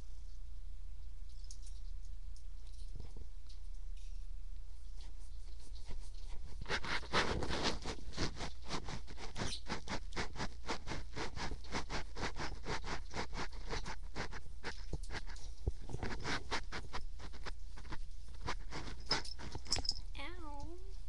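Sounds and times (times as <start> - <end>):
cat scratching: 4.8 - 20.0.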